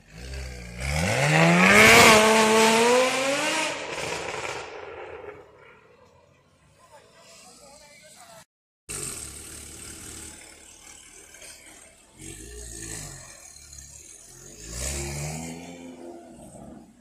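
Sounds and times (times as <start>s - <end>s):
sports car engine revving: 0.0s - 4.5s, 8.9s - 17.0s.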